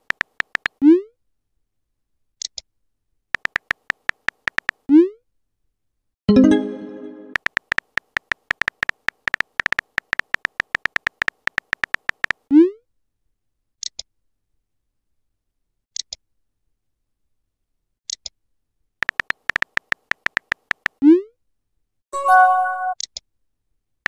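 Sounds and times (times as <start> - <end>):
phone keyboard typing clicks: 0.0 - 0.8, 3.4 - 4.8, 7.3 - 12.4, 19.0 - 21.0
faint double ticks: 3.4 - 4.8, 7.4 - 12.4, 19.0 - 21.0.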